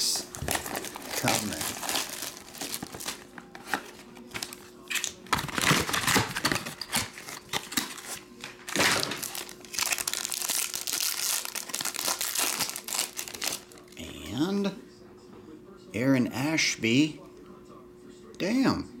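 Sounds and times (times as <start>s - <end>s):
foil packaging crinkling and tearing: 0.0s - 14.0s.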